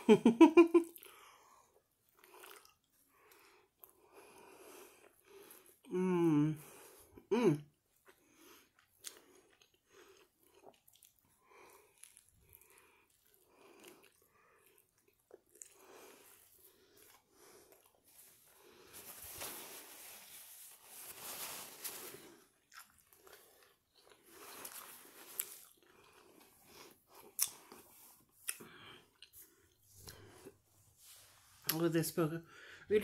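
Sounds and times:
person chewing: 0:02.0 - 0:05.8, 0:07.9 - 0:19.0, 0:21.5 - 0:30.6
paper napkin rustling: 0:18.9 - 0:22.2.

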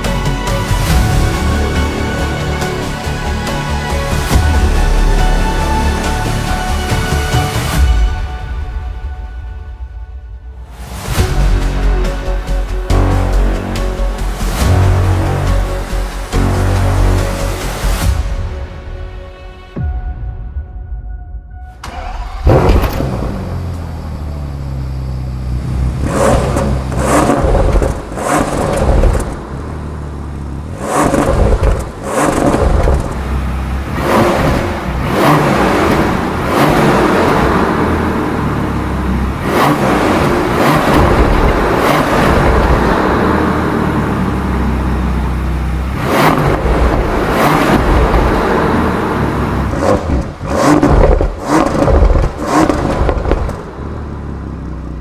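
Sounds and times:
car engine starting and revving: 0:21.8 - 0:55.0.

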